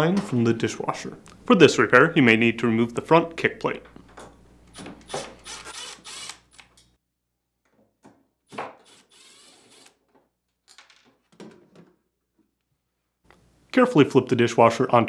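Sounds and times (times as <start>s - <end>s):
cordless drill motor whine: 5.4s - 6.7s, 8.9s - 9.9s.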